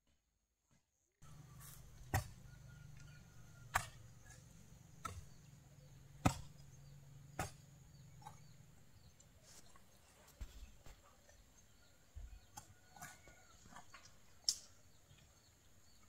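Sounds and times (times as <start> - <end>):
hand tool chopping: 1.6 - 2.4, 3.7 - 4.4, 5.0 - 5.4, 6.2 - 6.6, 7.3 - 7.6.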